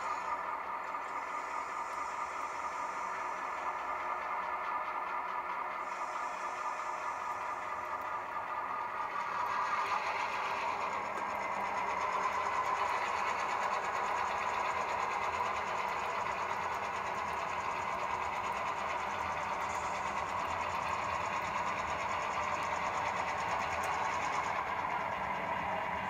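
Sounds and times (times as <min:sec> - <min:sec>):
model train whirring and clattering: 0:00.0 - 0:26.0.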